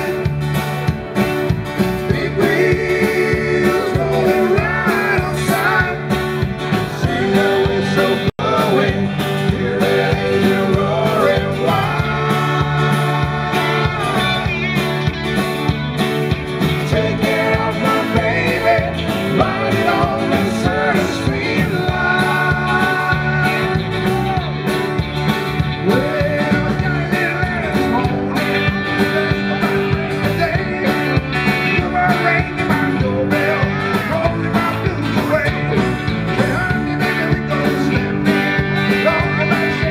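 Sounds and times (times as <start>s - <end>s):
live country rock band: 0.0s - 39.9s
man singing: 2.0s - 15.3s, 16.7s - 24.6s, 25.8s - 39.9s.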